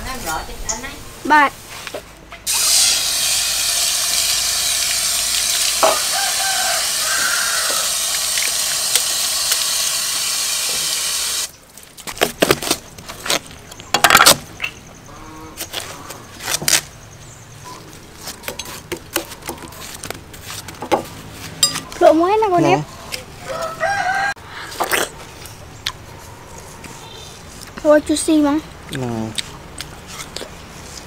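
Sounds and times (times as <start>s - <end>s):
water pouring from tap: 2.5s - 6.2s, 7.5s - 11.5s.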